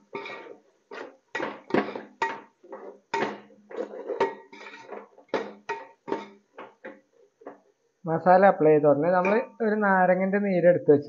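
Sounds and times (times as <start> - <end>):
metal spoon scraping a pot: 0.0 - 7.0, 9.2 - 9.6.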